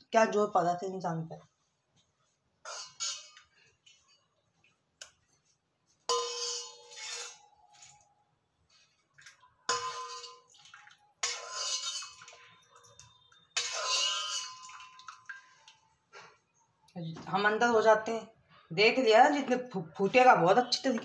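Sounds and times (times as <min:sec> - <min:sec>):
water splashing: 0:09.1 - 0:15.9.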